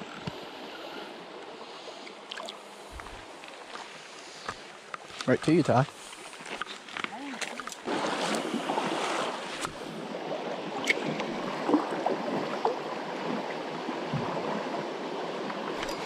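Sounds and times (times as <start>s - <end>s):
flowing creek: 0.0s - 16.0s.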